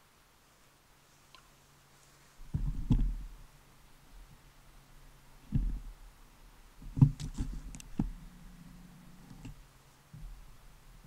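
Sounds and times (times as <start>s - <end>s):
dull low bumps: 2.4s - 3.5s, 5.4s - 6.0s, 6.7s - 11.0s.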